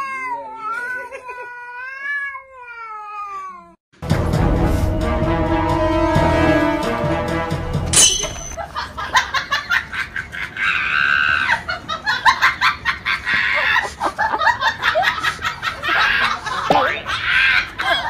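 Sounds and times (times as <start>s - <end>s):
person laughing hard: 8.6s - 18.0s.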